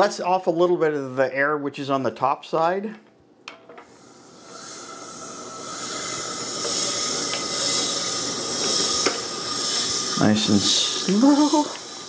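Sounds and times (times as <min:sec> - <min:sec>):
air hissing from sausage stuffer: 0:03.9 - 0:12.0.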